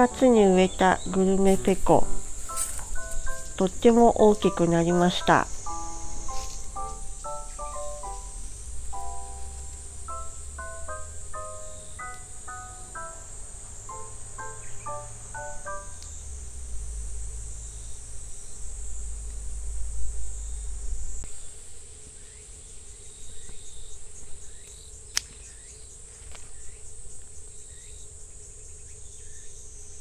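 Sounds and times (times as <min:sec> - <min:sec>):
chorus of insects: 0:00.0 - 0:30.0
low rumble: 0:05.4 - 0:11.4, 0:15.0 - 0:21.3.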